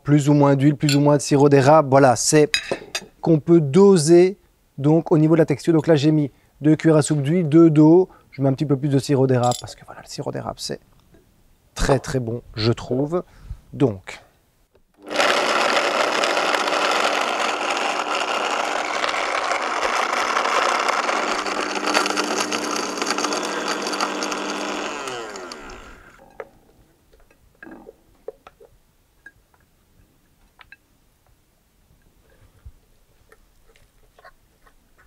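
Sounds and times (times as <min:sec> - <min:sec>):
blender grinding thick mixture: 0:15.0 - 0:26.2
blender spinning down whine: 0:15.0 - 0:26.2.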